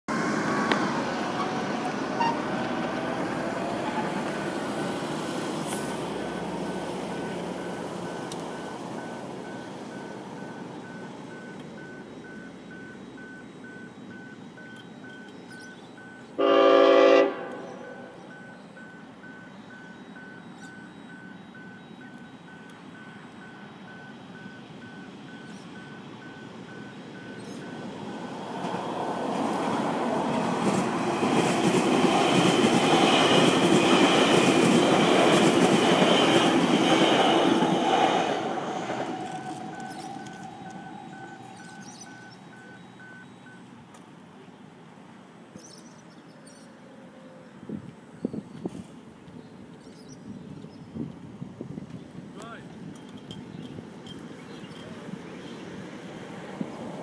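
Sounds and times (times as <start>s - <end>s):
train rumble: 0.1s - 43.8s, 47.0s - 57.0s
train horn: 1.3s - 2.7s, 16.4s - 18.1s
rushing noise: 25.9s - 42.4s.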